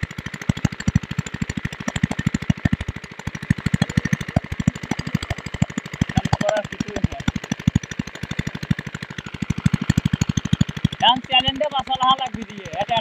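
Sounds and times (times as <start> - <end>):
diesel engine chugging: 0.0 - 13.0.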